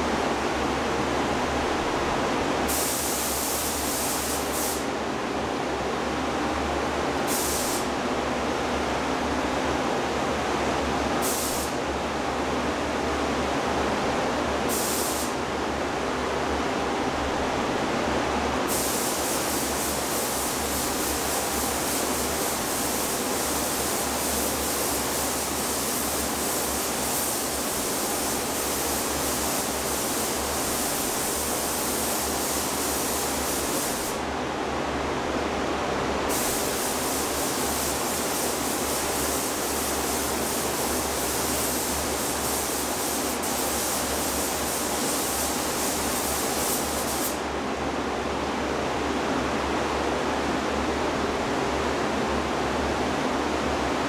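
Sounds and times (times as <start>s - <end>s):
paint spray gun hissing: 2.7s - 4.9s, 7.3s - 7.9s, 11.2s - 11.8s, 14.7s - 15.4s, 18.7s - 34.2s, 36.3s - 47.4s.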